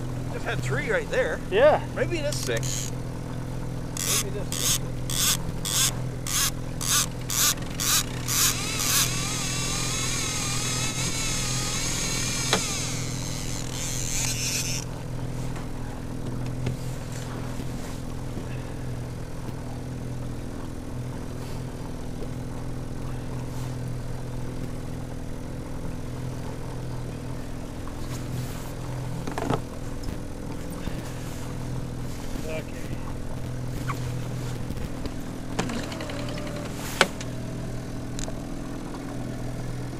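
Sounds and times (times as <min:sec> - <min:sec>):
boat motor running: 0:00.0 - 0:39.9
high whirring hiss: 0:04.0 - 0:14.8.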